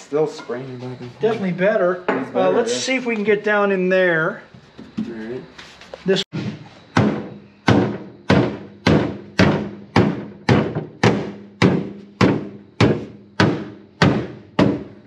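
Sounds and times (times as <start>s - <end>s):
hammer blows on sheet steel: 6.3s - 15.0s.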